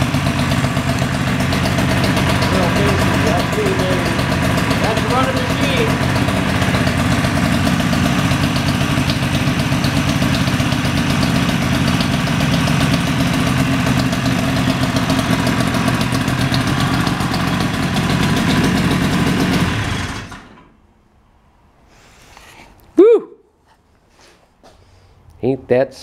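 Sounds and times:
two-stroke engine idling: 0:00.0 - 0:20.7.

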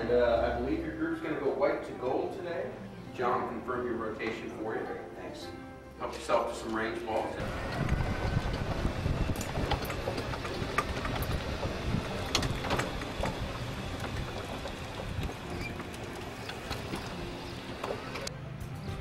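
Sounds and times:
golf cart rumble: 0:07.4 - 0:18.3
rattles and clicks: 0:07.4 - 0:18.3.

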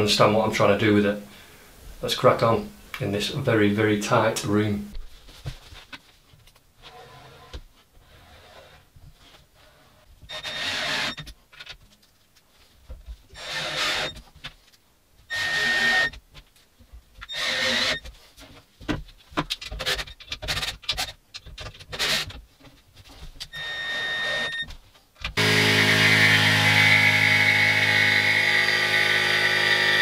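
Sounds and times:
cordless drill driving screws: 0:10.3 - 0:11.2, 0:13.4 - 0:14.2, 0:15.3 - 0:16.2, 0:17.3 - 0:18.0, 0:23.5 - 0:24.6, 0:25.4 - 0:30.0
jigsaw buzzing: 0:10.3 - 0:11.2, 0:13.4 - 0:14.2, 0:15.3 - 0:16.1, 0:17.3 - 0:18.0, 0:23.6 - 0:24.6, 0:25.4 - 0:30.0.

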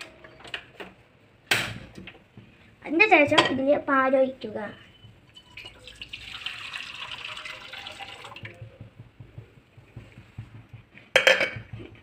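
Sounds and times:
milk pouring into pan: 0:05.4 - 0:08.6
faint knocks: 0:08.5 - 0:12.0.

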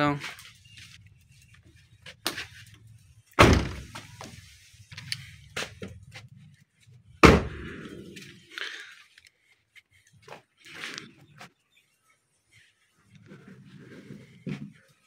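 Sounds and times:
car door slamming: 0:03.4 - 0:03.9.

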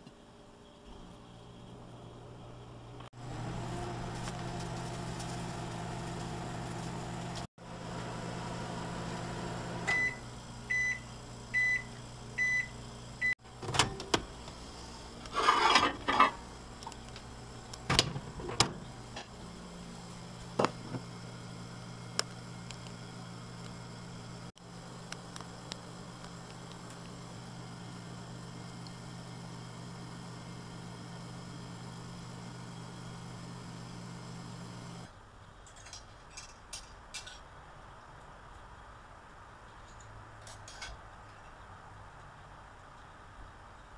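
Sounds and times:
microwave oven humming: 0:01.3 - 0:15.2, 0:16.3 - 0:35.1
microwave beeping: 0:07.8 - 0:14.3
microwave door opening clicks: 0:13.6 - 0:14.3.

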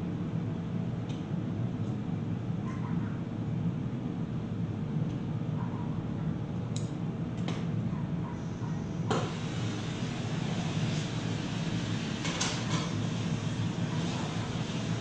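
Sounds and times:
gas burner roaring: 0:08.4 - 0:15.0.

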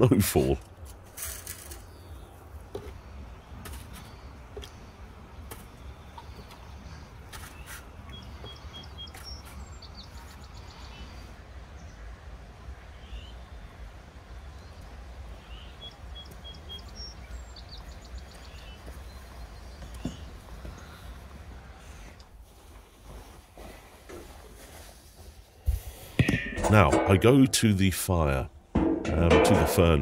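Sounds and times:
birds chirping: 0:01.6 - 0:22.4
sharp knock: 0:28.8 - 0:30.0.

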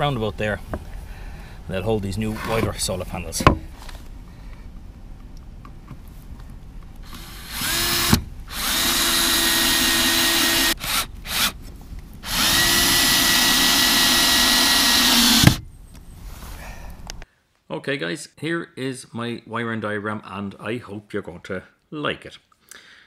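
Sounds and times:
cordless drill whining: 0:07.0 - 0:11.6, 0:12.2 - 0:15.6.

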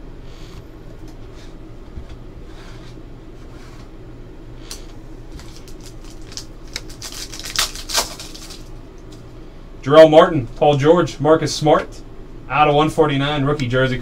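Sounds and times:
foil wrapper crinkling: 0:05.3 - 0:09.2.

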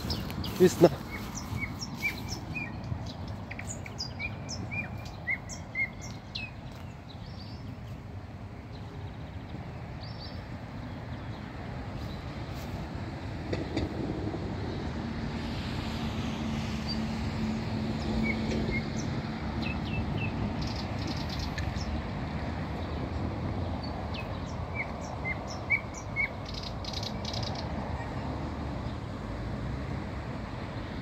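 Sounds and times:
nightingale singing: 0:00.0 - 0:07.5.

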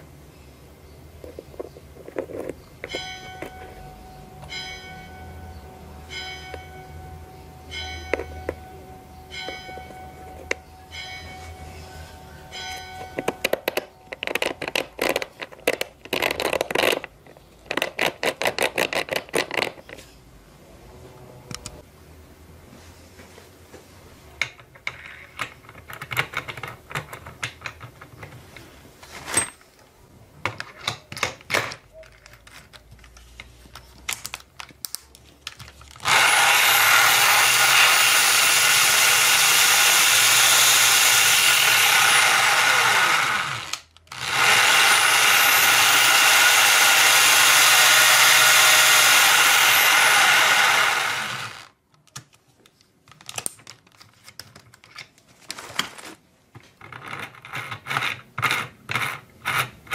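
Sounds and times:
power drill running: 0:36.0 - 0:51.7.

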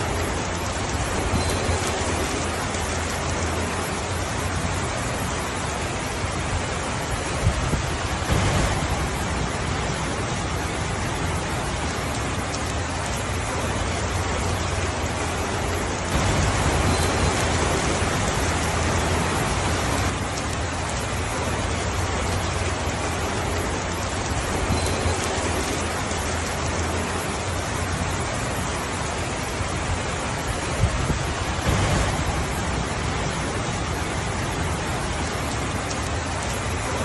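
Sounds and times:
heavy rainfall: 0:00.0 - 0:37.0.

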